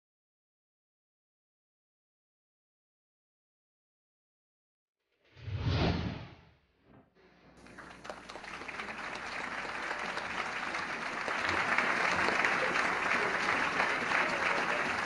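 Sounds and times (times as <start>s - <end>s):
crowd applauding: 7.6s - 15.0s.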